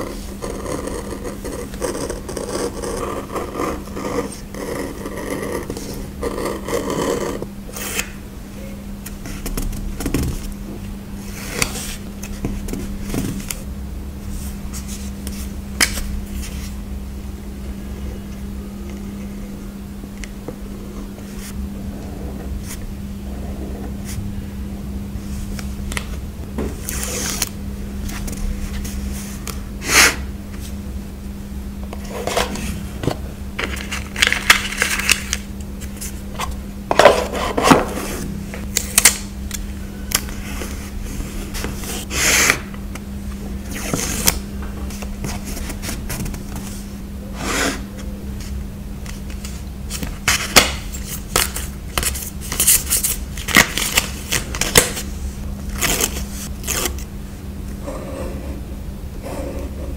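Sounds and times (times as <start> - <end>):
steady low hum: 0.0 - 59.9
paper and stickers crinkling: 33.6 - 36.2.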